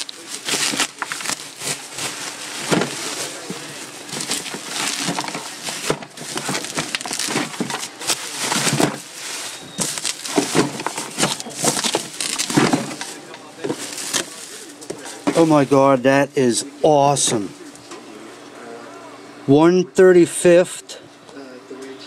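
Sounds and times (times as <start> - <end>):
bubble wrap rustling: 0.0 - 15.8.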